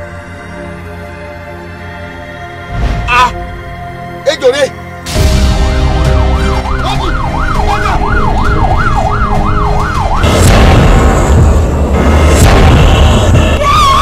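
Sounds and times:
siren yelping: 0:06.0 - 0:10.5.

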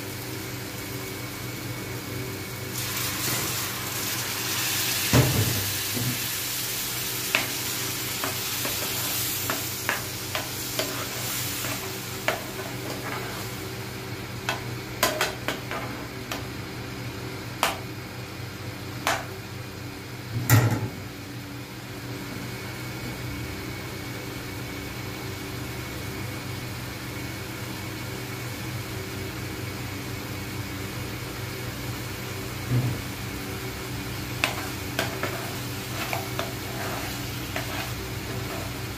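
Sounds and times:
food sizzling in a frying pan: 0:00.0 - 0:16.6, 0:31.5 - 0:38.9
steady low hum: 0:00.0 - 0:22.4, 0:31.9 - 0:38.9
metal spatula scraping pan: 0:34.4 - 0:38.9.

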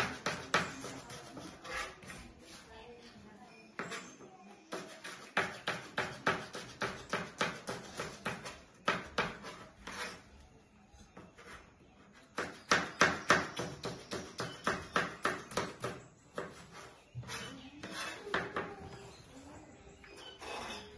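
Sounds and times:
knife chopping on cutting board: 0:04.7 - 0:10.1.

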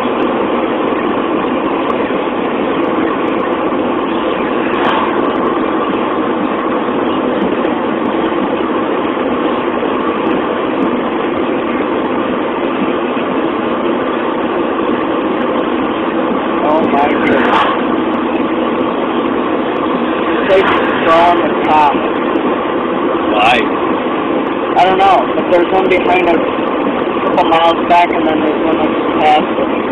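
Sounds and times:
car road and wind noise: 0:00.0 - 0:29.9.

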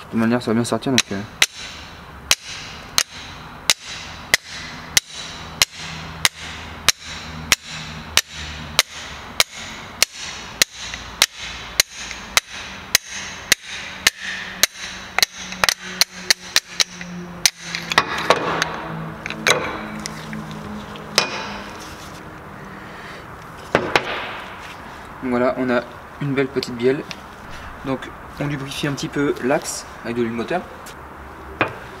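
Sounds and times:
hammer tapping on metal: 0:01.0 - 0:20.0, 0:21.1 - 0:21.8.

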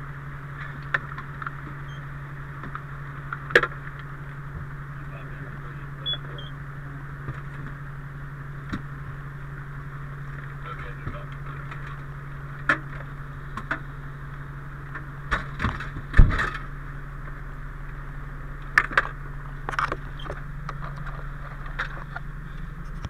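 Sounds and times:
fire engine idling: 0:00.0 - 0:23.0.

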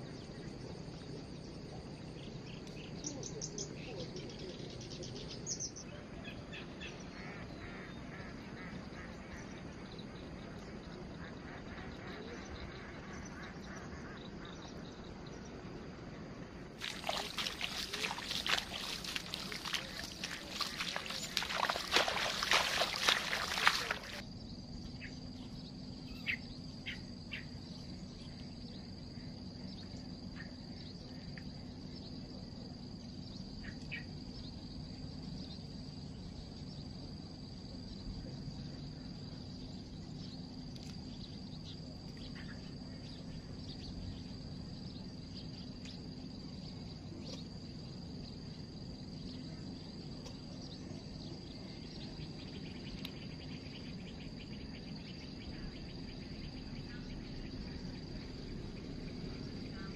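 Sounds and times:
insects chirring: 0:00.0 - 0:59.9
low steady hum: 0:00.0 - 0:59.9
faint scattered chirps: 0:16.8 - 0:24.2
loud sloshing water: 0:16.8 - 0:24.2.

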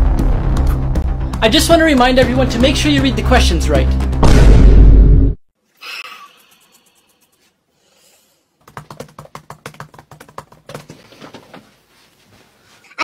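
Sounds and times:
laptop keyboard typing: 0:08.6 - 0:11.1.

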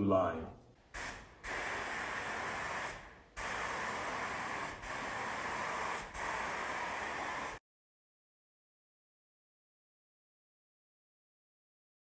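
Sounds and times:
spray gun hissing: 0:00.9 - 0:07.6.

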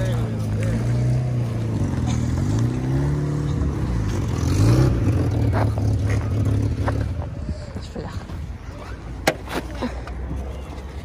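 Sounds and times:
vehicle engine revving: 0:00.0 - 0:07.4.

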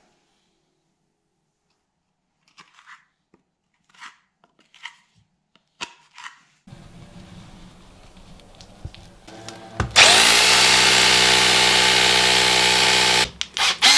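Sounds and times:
power drill running: 0:09.3 - 0:13.9.

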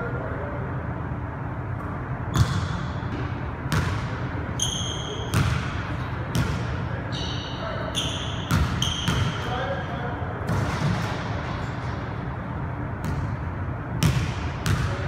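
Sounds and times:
sneakers squeaking on court: 0:02.3 - 0:09.6.

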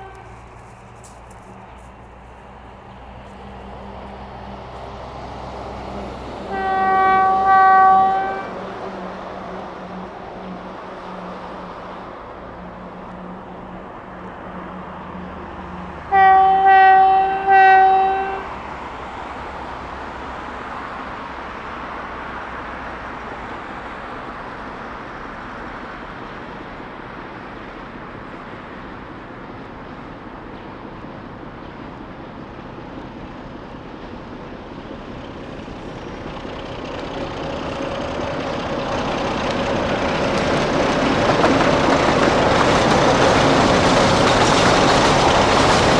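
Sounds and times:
locomotive horn blasts: 0:00.0 - 0:00.5, 0:06.4 - 0:08.6, 0:16.1 - 0:18.5
diesel locomotive engine: 0:00.0 - 0:45.9.

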